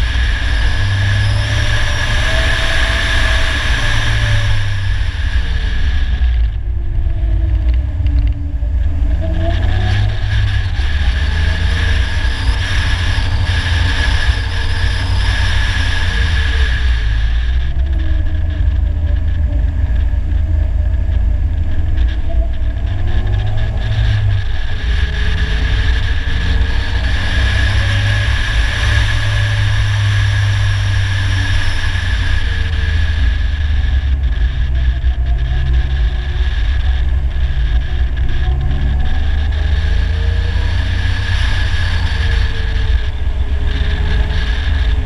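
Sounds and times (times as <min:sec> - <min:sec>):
engine and road rumble: 0:00.0 - 0:45.0.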